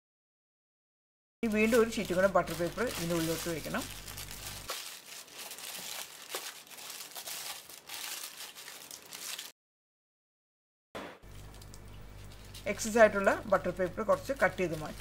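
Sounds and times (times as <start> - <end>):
parchment paper crinkling: 1.4 - 9.5, 11.3 - 15.0.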